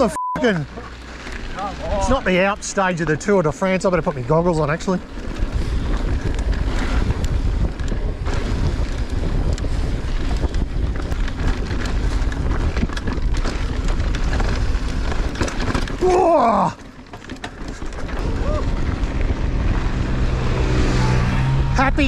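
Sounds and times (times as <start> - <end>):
bike tyres rolling on dirt trail: 0.0 - 22.0
bike clicks and rattles: 0.7 - 20.3
wind buffeting microphone: 4.0 - 16.6, 17.6 - 22.0.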